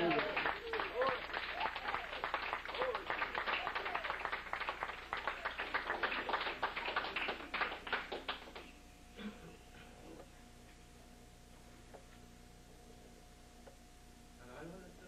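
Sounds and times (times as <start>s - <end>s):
congregation clapping: 0.0s - 8.7s.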